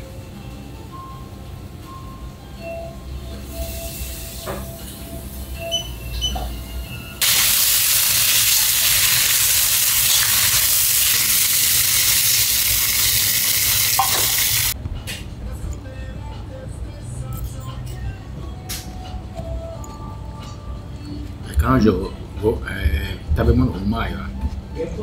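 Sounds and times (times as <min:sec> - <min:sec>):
vegetables sizzling in a wok: 0:07.2 - 0:14.8.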